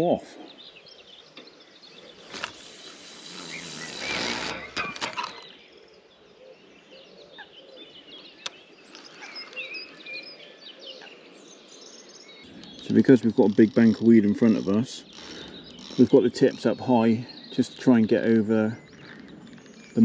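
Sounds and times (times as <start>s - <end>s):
birds chirping: 0.0s - 20.0s
line running off reel: 2.2s - 5.4s, 12.5s - 17.0s
reel clicking: 2.3s - 5.4s.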